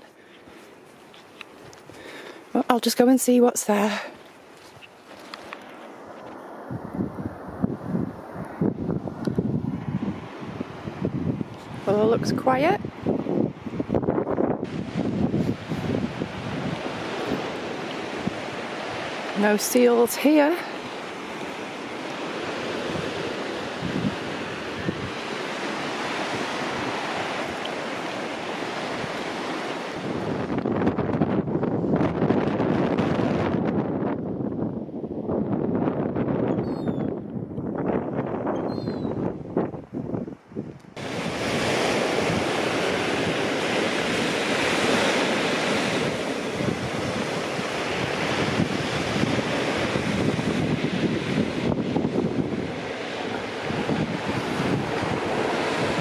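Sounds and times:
wind: 0.0s - 56.0s
wind buffeting microphone: 4.7s - 56.0s
surf breaking on shingle beach: 8.6s - 33.8s, 41.0s - 56.0s.

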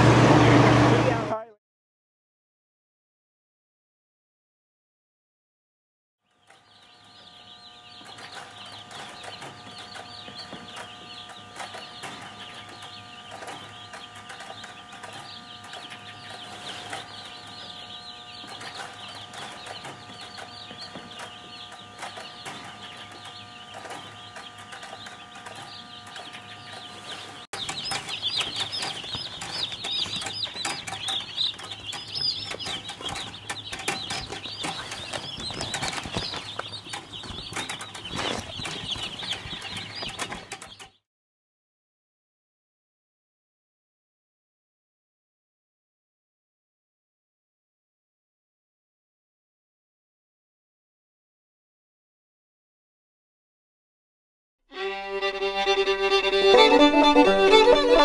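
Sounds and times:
chicks peeping: 6.2s - 41.0s, 54.8s - 58.0s.

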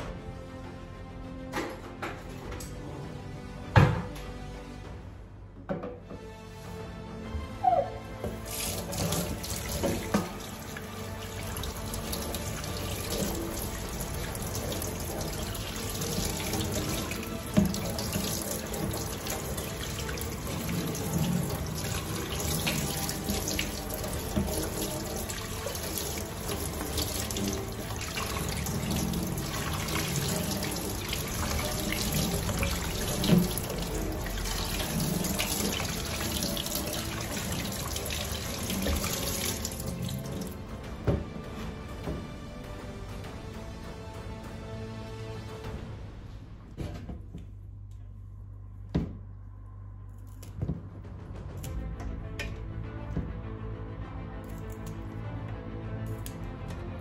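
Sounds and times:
tap water running into sink: 7.6s - 41.3s.

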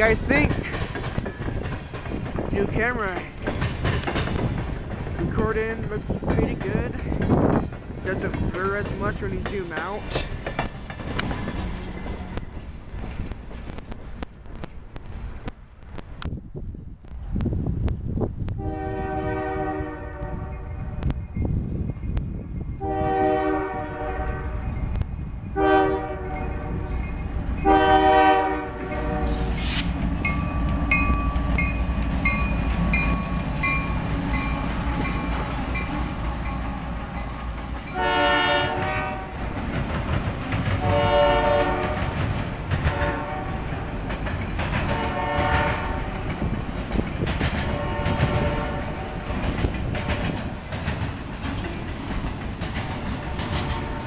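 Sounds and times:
train wheels clattering on rails: 0.0s - 16.0s, 24.8s - 54.0s
diesel locomotives rumbling: 0.0s - 54.0s
train air horn blasts: 18.6s - 21.1s, 22.8s - 24.8s, 25.6s - 26.9s, 27.6s - 29.9s, 37.9s - 39.4s, 40.8s - 42.0s, 42.8s - 43.7s, 44.8s - 46.2s, 47.6s - 49.2s, 53.3s - 54.0s.

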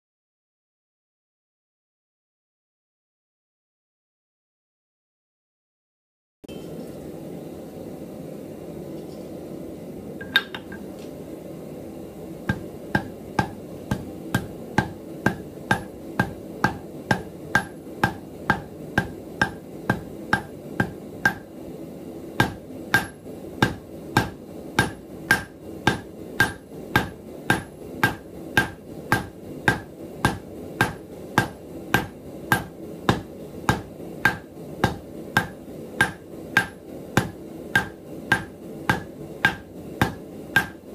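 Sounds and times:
hammer striking metal on anvil: 10.2s - 10.8s, 12.5s - 21.5s, 22.4s - 40.9s.

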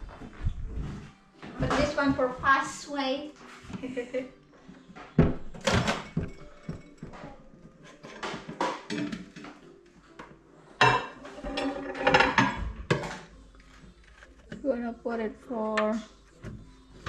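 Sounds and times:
crockery clinks and knocks: 5.2s - 9.4s, 10.8s - 13.2s.

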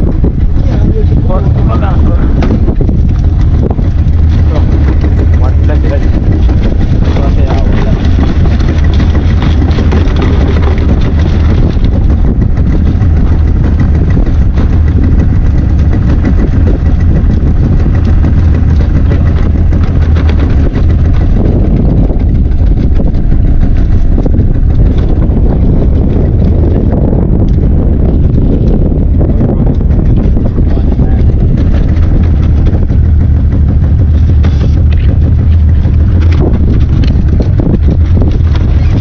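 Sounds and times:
boat engine running: 0.0s - 39.0s
wind buffeting microphone: 0.0s - 39.0s.

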